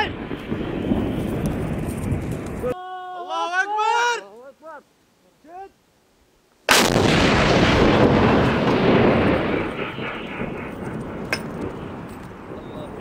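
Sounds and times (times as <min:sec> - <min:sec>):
field gun blast: 0:06.7 - 0:12.7.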